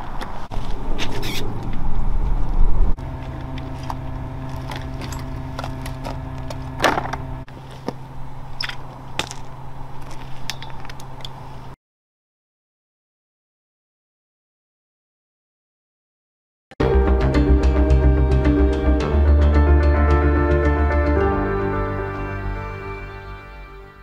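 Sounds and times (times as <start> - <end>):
steady machine hum: 2.9 - 9.9.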